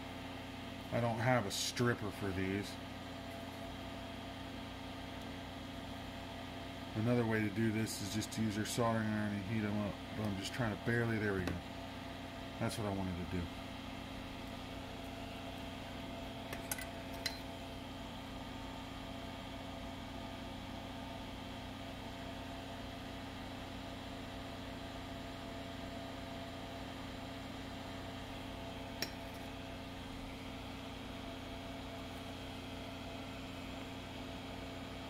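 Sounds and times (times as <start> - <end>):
exhaust fan humming: 0.0 - 35.0.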